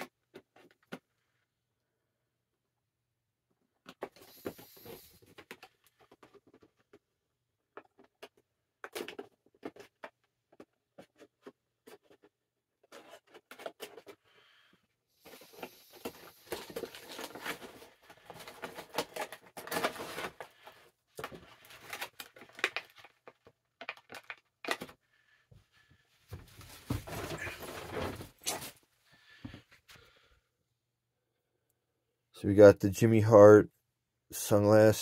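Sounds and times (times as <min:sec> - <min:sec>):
plastic packaging crinkling and tearing: 0:15.3 - 0:20.6, 0:21.2 - 0:24.9.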